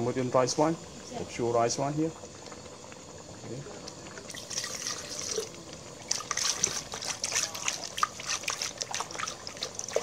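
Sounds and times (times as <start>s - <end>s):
liquid pouring into pot: 0.0s - 10.0s
splashes and drips: 3.9s - 10.0s.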